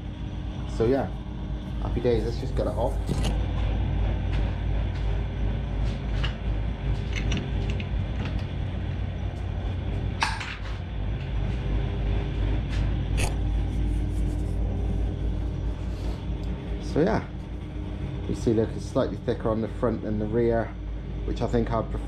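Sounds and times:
steady low hum: 0.0s - 22.0s
metal clicks and clinks: 7.1s - 8.5s.

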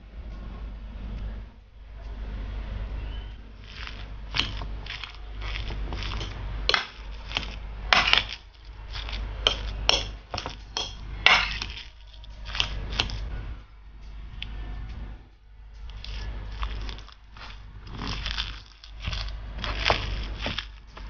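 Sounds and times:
fork clinking and scraping plate: 3.7s - 13.3s.

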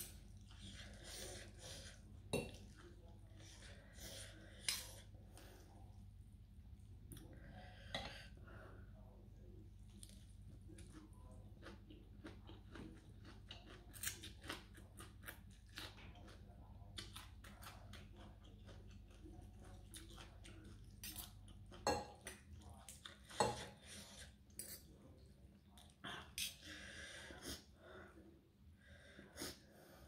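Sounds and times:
person chewing: 9.9s - 26.6s.

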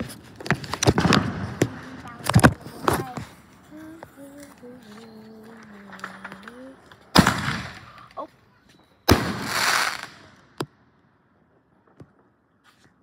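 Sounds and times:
fireworks banging: 0.0s - 8.3s, 9.0s - 10.7s
fireworks crackling: 0.0s - 8.3s, 9.1s - 10.6s.

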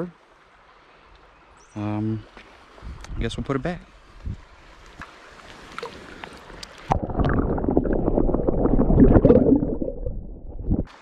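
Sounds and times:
underwater water sloshing: 4.0s - 11.0s.

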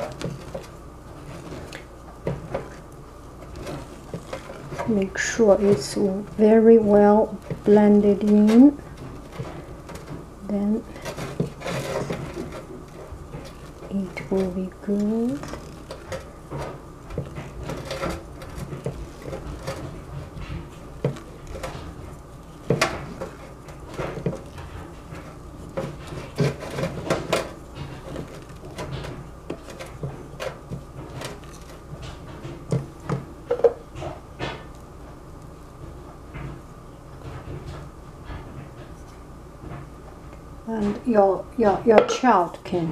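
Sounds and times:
spatula scraping metal pot: 3.4s - 33.8s
utensil knocking on metal pot: 33.5s - 33.8s.

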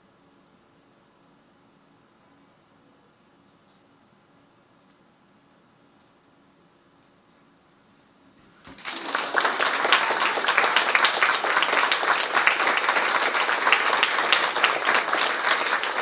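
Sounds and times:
audience clapping: 8.7s - 16.0s.

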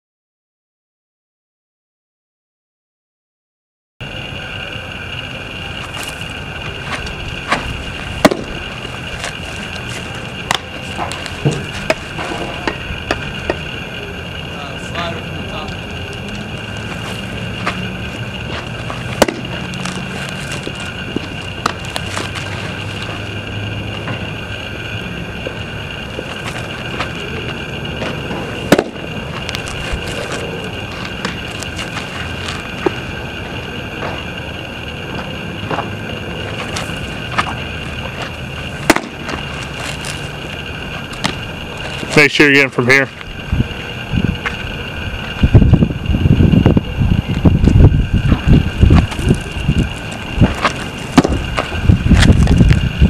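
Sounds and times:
steady outdoor hiss: 4.0s - 53.0s
baseball smacking into mitt: 7.5s - 8.5s, 19.2s - 19.5s, 28.7s - 29.0s, 38.8s - 39.4s, 50.5s - 51.4s.

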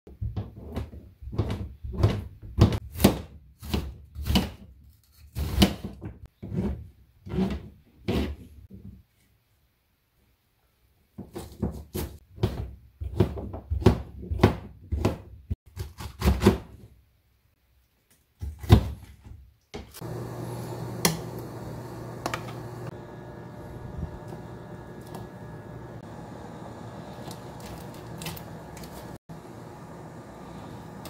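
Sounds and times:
induction cooktop hum: 19.9s - 31.0s.

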